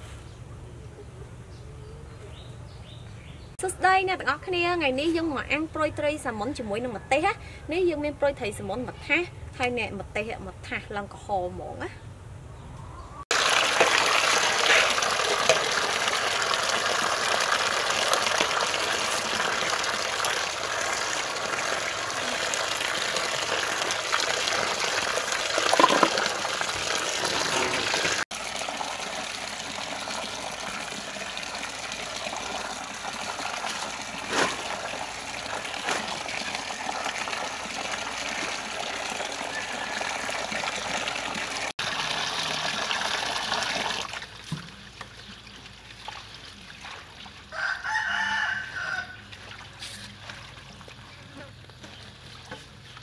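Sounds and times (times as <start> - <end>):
water running and splashing: 13.3 - 53.0.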